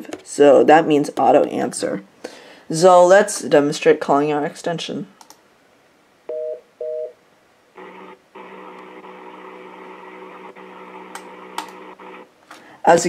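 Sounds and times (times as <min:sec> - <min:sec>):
phone two-pitch beeps: 0:06.3 - 0:07.1
steady buzzing tone: 0:07.8 - 0:12.3.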